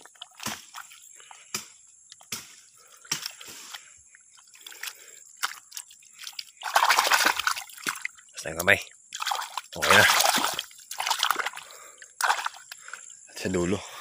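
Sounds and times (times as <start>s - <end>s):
trickling water: 0.0s - 1.3s, 2.8s - 13.8s
hands slapping wet mud: 3.1s - 3.8s, 4.6s - 12.9s
water splash: 6.6s - 8.1s, 9.2s - 11.6s, 12.2s - 12.6s.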